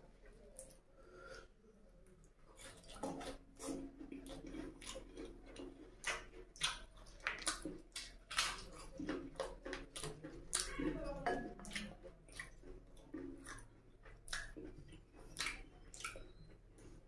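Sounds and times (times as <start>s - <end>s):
chewing mouth noises: 0.3s - 17.0s.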